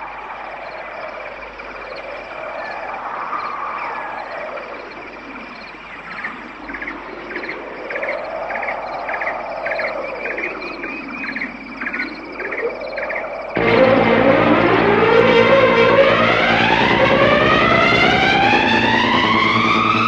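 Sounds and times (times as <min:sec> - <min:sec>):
slow rising and falling tones: 0:13.6 - 0:20.0
vehicle engine: 0:13.6 - 0:20.0.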